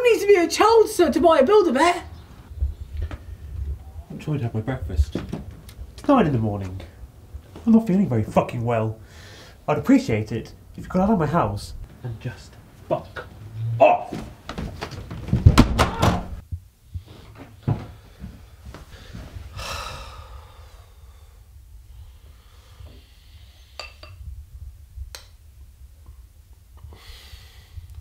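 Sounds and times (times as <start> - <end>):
front door banging shut: 14.1 - 16.4
person exhaling: 19.0 - 23.9, 26.8 - 28.0.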